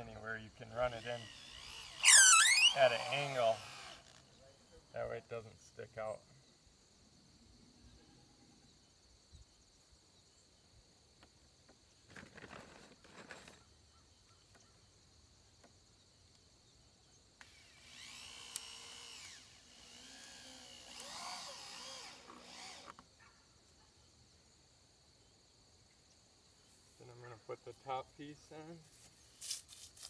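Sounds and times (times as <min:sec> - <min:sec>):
power drill driving screws: 0:00.8 - 0:04.4, 0:17.4 - 0:23.1.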